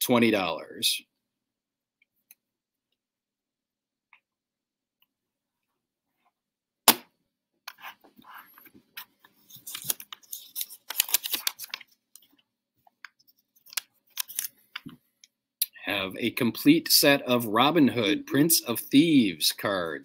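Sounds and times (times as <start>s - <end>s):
sharp knock: 6.9s - 7.1s.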